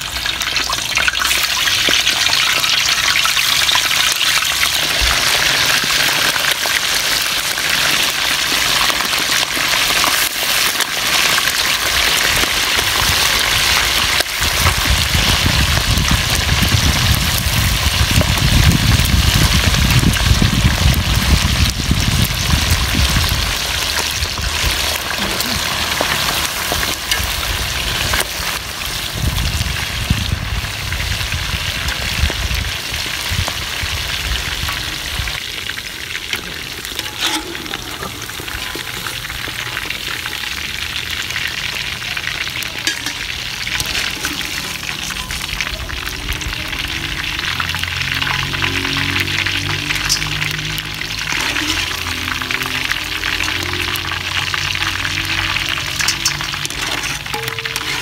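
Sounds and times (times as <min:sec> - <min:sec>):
chicken deep-frying in oil: 0:00.0 - 0:58.0.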